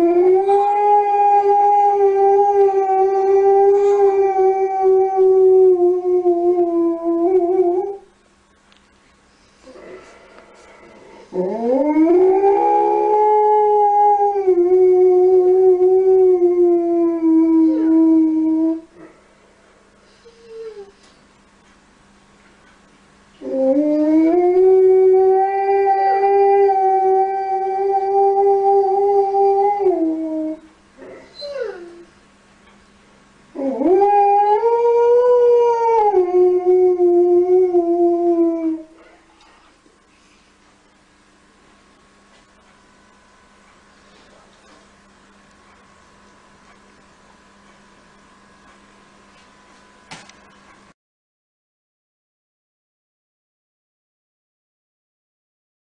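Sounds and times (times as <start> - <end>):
dog howling: 0.0 - 8.0, 11.3 - 18.9, 31.3 - 32.1, 33.6 - 39.0.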